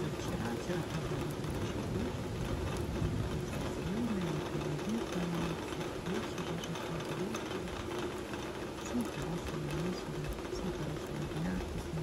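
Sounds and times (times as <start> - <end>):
rain falling on trees and pavement: 0.0 - 12.0.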